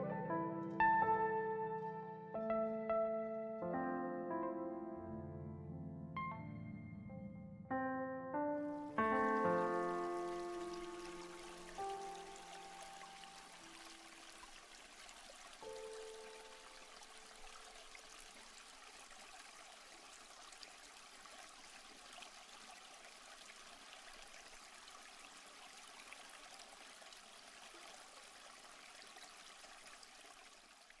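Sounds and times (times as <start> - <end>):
background music: 0.0 - 13.7
faint steady hiss: 8.7 - 31.0.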